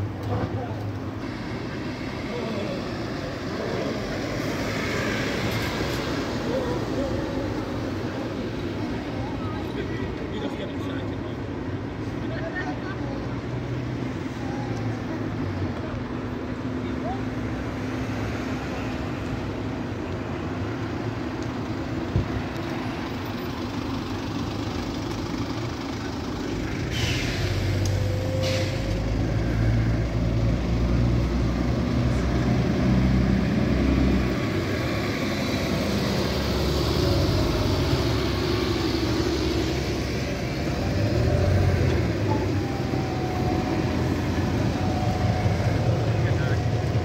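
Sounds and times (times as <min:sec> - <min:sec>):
bus engines driving past: 0:00.0 - 0:47.0
air brake hisses: 0:26.9 - 0:29.0.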